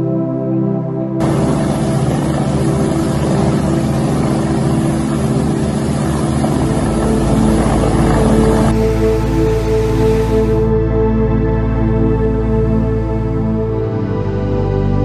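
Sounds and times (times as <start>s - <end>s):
helicopter engine rushing: 1.2s - 10.7s
helicopter rotor beating: 1.2s - 10.7s.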